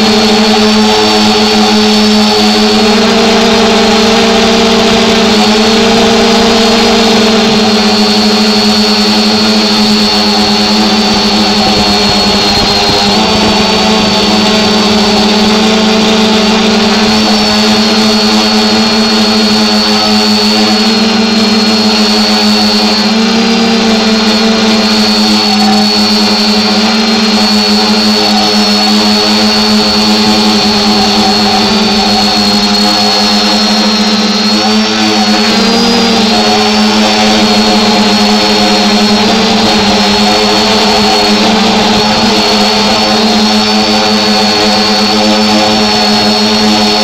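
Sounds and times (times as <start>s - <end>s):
drone propellers whining: 0.0s - 47.0s.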